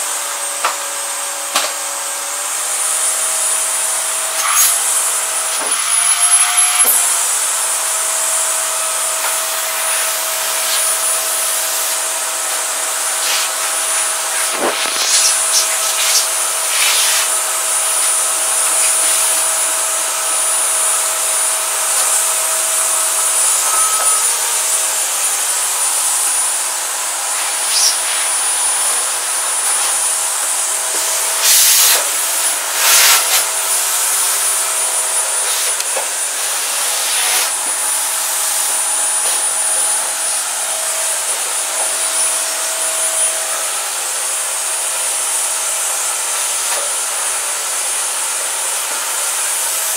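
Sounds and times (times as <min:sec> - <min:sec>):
appliance motor rushing: 0:03.6 - 0:26.3
high whine: 0:06.4 - 0:36.0.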